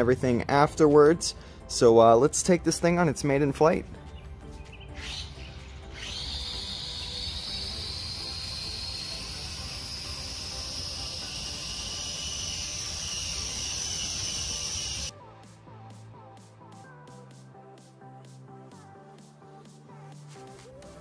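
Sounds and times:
quadcopter motors whining: 5.9s - 15.1s.

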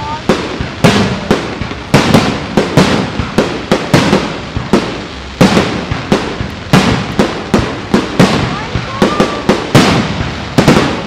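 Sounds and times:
fireworks bangs echoing: 0.0s - 11.0s.

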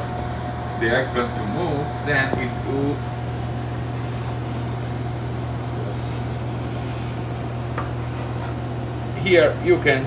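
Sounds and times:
kitchen ventilation hum: 0.0s - 10.0s
knife scraping on cutting board: 6.8s - 8.6s.

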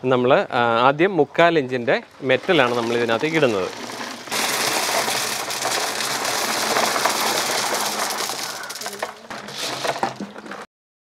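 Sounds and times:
crushed stone poured into plastic drum: 2.2s - 10.7s.

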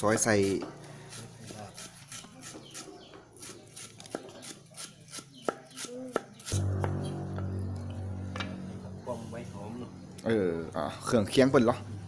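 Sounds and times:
steady low hum: 6.5s - 12.0s.

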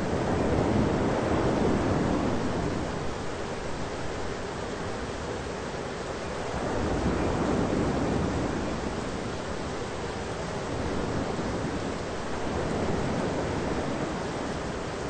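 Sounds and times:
thunderstorm rushing noise: 0.0s - 3.2s, 6.5s - 9.8s, 10.5s - 15.0s.

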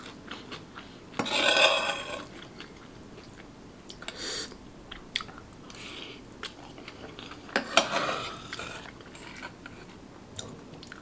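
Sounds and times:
metal spoon scraping a plate: 1.2s - 2.3s, 7.5s - 9.9s.

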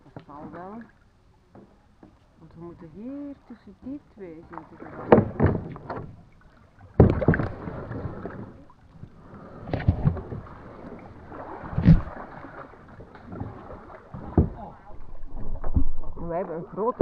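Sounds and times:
kayak paddle splashing: 0.0s - 17.0s
loud splashes or knocks: 4.5s - 8.8s, 9.6s - 17.0s.

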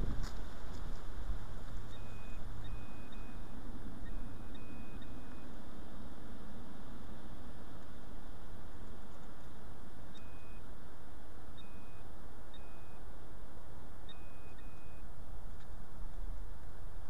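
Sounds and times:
low background hiss: 0.0s - 17.0s
metal detector beeps: 1.9s - 5.5s, 10.1s - 10.7s, 11.6s - 13.0s, 14.1s - 15.1s.

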